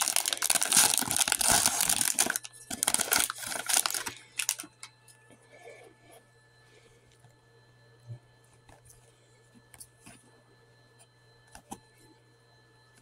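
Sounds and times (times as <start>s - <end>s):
foil wrapper tearing and crinkling: 0.0s - 4.8s.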